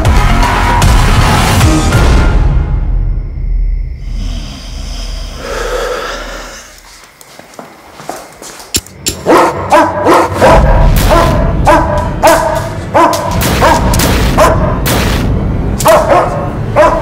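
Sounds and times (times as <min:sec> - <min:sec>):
dog barking: 0:09.2 - 0:14.8, 0:15.8 - 0:17.0.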